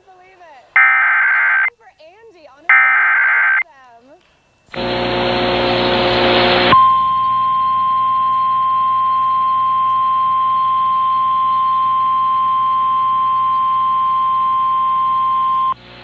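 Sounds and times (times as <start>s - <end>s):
steady alert tone: 0.8s - 1.7s, 2.7s - 3.6s.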